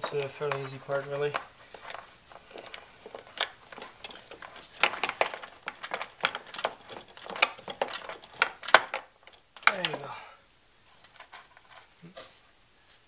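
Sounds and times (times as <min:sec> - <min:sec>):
metallic clicks of fasteners and tool: 0:00.0 - 0:10.1.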